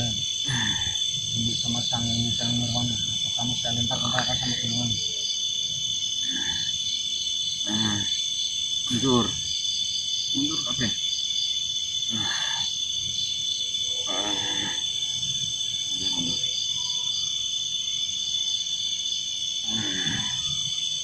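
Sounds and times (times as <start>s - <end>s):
crickets chirping: 0.0s - 21.0s
man growling and roaring: 12.1s - 12.7s, 14.1s - 14.8s, 19.7s - 20.4s.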